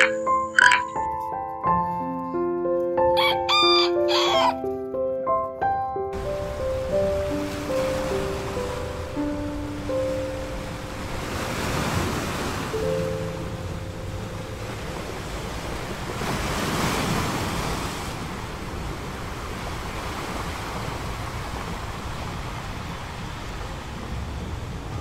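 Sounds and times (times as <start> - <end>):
ocean surf on a beach: 6.2 - 25.0.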